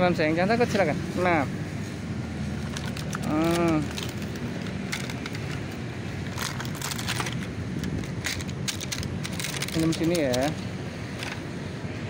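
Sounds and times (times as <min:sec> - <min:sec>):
road traffic drone: 0:00.0 - 0:12.0
thin plastic crinkling: 0:02.5 - 0:10.6.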